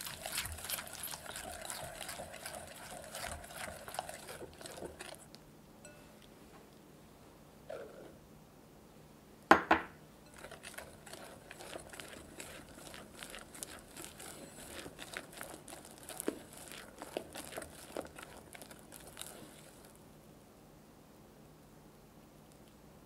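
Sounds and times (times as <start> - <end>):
whisk stirring in glass bowl: 0.0 - 5.3, 10.2 - 20.0.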